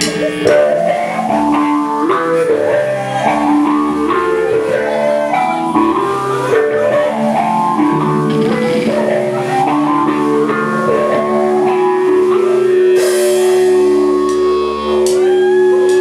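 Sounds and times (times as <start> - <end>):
bass guitar: 0.0 - 16.0
electric guitar riff: 0.0 - 16.0.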